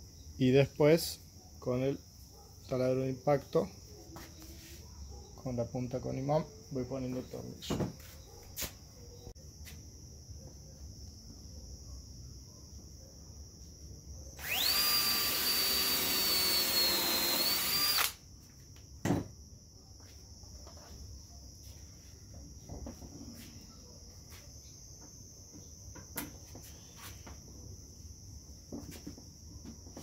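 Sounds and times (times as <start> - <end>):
impact driver whine: 14.4 - 18.2.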